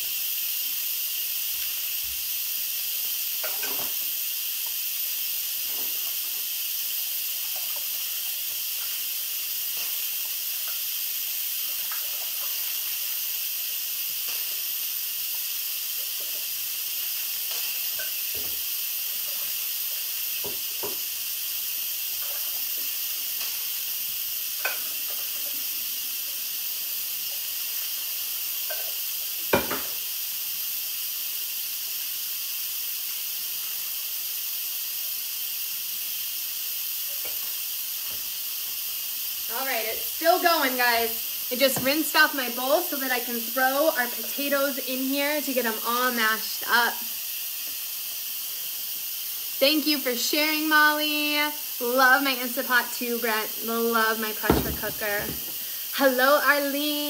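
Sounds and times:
pressure cooker steam hiss: 0.0 - 57.0
dishes clinking and knocking: 3.4 - 4.0, 29.5 - 30.0, 54.5 - 55.6.

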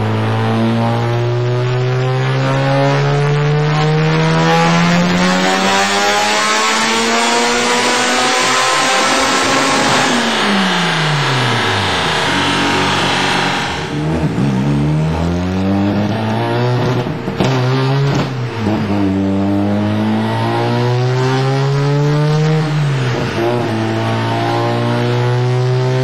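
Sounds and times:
rotary engine running hard: 4.1 - 15.9.

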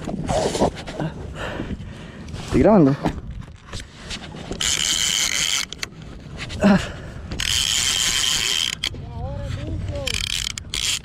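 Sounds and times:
fishing reel drag screaming: 7.4 - 8.9, 10.0 - 11.0.

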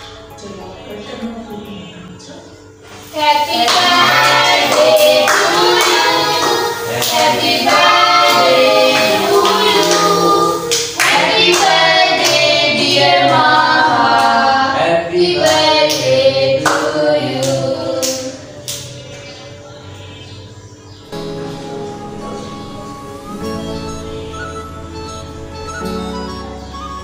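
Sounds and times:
family singing birthday song: 2.9 - 20.5
hands clapping: 3.3 - 14.4, 15.4 - 19.0.

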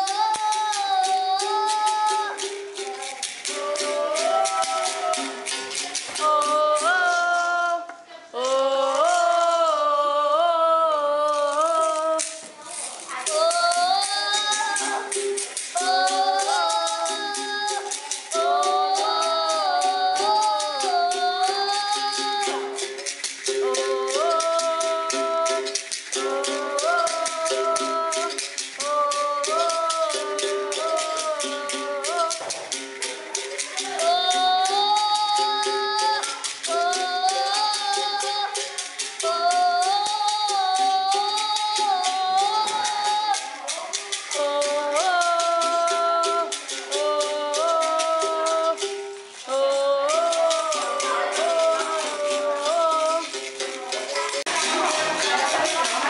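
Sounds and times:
basket rattle shaking: 0.0 - 7.9, 11.2 - 56.0
child singing: 0.0 - 56.0.

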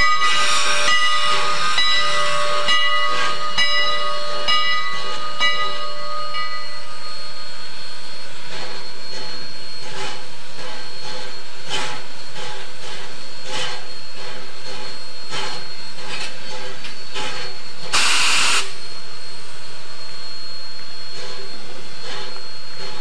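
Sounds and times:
steam locomotive chuffing: 0.0 - 19.6, 20.8 - 23.0
steam hiss: 0.2 - 3.4, 7.7 - 18.8.

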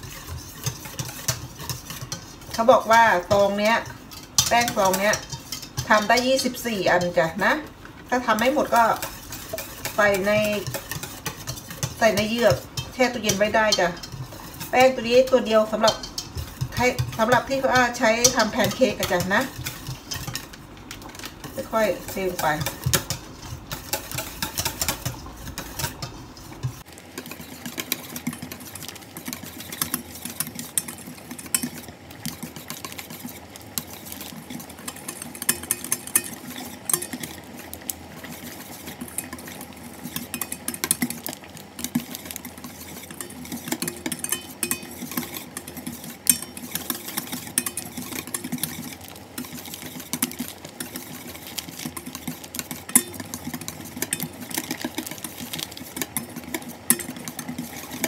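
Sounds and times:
whisk clattering in metal bowl: 0.0 - 58.0.

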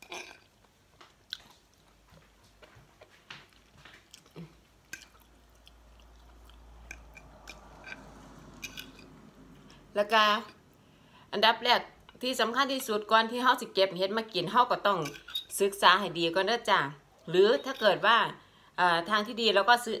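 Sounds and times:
person chewing: 0.0 - 8.9.

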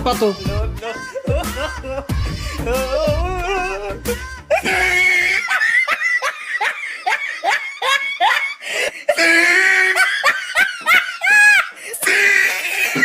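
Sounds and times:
background music with bass line: 0.0 - 5.4
laugh track: 0.0 - 13.0.

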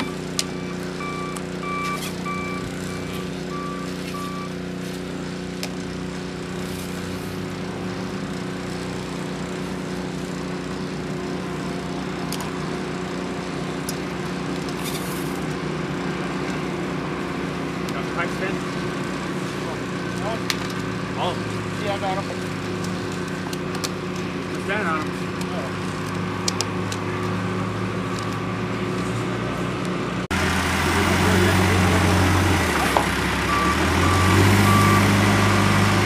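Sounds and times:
backup alarm beeping: 0.0 - 4.6, 33.5 - 35.2
construction machine engine idling: 0.0 - 5.6, 15.4 - 36.0.

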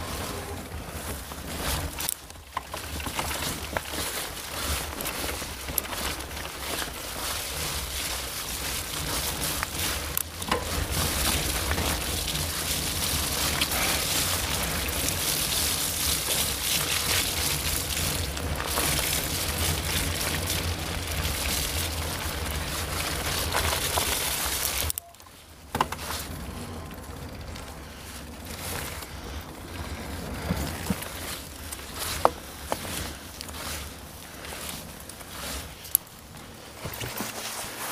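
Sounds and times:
bike tyres rolling: 0.0 - 37.9
bike knocking on wooden boardwalk: 0.1 - 24.9, 25.6 - 27.7.

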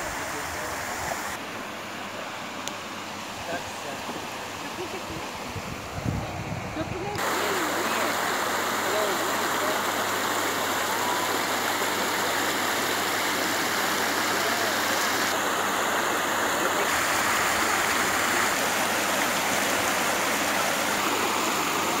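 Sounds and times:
river rushing over pebbles: 6.8 - 22.0.

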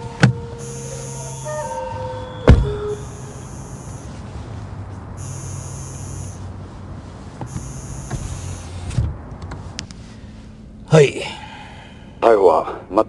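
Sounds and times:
machine hissing and humming: 0.0 - 4.5, 7.5 - 8.9.

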